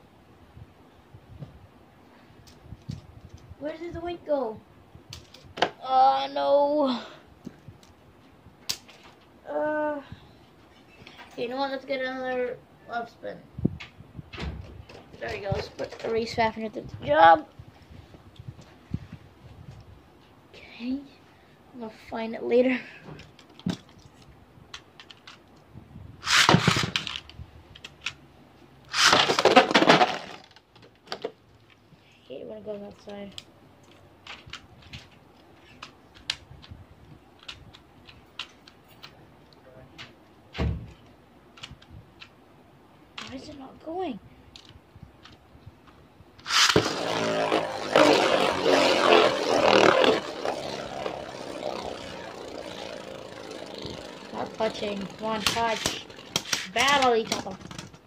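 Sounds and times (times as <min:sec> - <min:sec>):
spinning top scraping across plastic: 0:14.9 - 0:16.4, 0:26.2 - 0:28.0, 0:28.9 - 0:30.7, 0:46.4 - 0:58.0
launcher pull: 0:26.2 - 0:27.1, 0:28.9 - 0:30.1, 0:46.4 - 0:50.7
top clattering in plastic stadium: 0:29.0 - 0:31.3.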